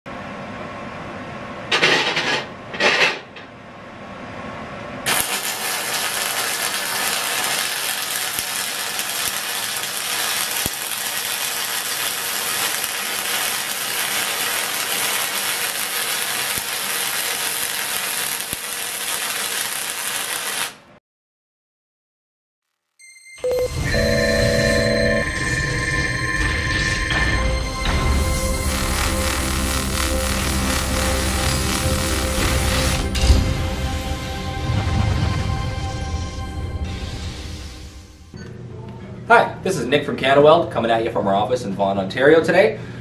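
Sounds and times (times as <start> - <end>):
welding arc crackling hiss: 5.1 - 20.9, 27.9 - 34.0.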